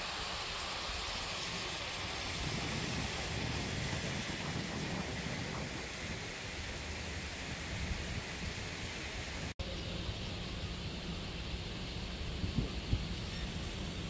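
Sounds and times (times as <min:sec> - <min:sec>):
water falling and splashing: 0:00.0 - 0:09.6.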